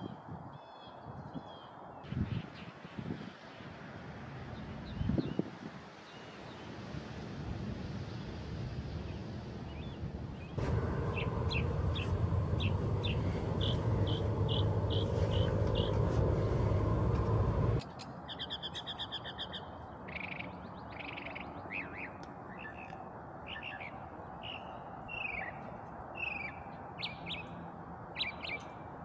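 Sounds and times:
mockingbird singing: 0:10.6 - 0:17.8
wind noise rumble: 0:10.6 - 0:17.8.

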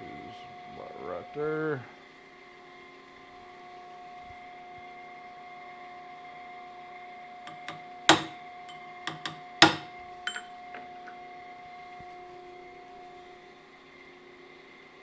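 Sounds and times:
hammer striking metal punch: 0:07.5 - 0:08.4, 0:09.1 - 0:11.2
light hammer taps: 0:07.5 - 0:08.4, 0:09.1 - 0:10.9.

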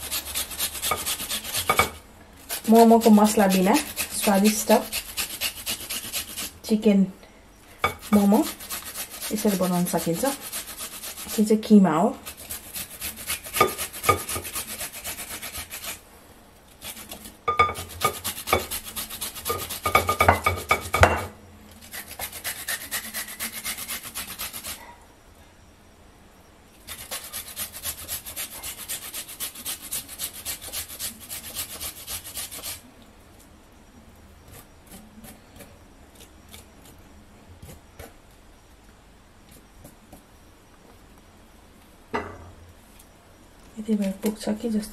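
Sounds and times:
ginger grated on metal grater: 0:00.0 - 0:06.7, 0:07.9 - 0:16.0, 0:16.8 - 0:21.0, 0:21.8 - 0:24.8, 0:26.9 - 0:32.8.

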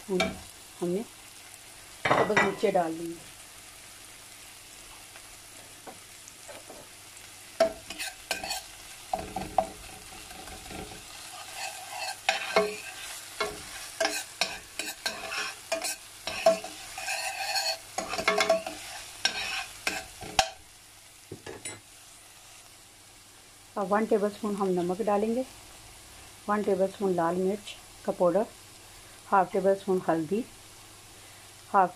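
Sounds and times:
light sizzle of frying: 0:00.0 - 0:31.9
spoon scraping a metal pot: 0:07.6 - 0:20.6.

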